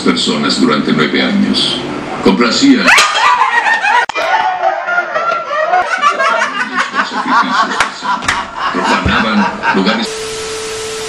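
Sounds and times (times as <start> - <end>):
young men laughing: 2.8 - 10.1.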